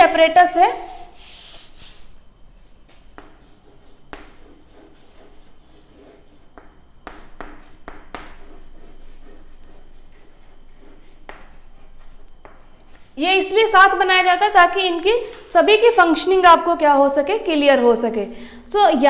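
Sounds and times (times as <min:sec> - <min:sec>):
chalk writing on a blackboard: 0:00.0 - 0:02.2, 0:03.2 - 0:13.1.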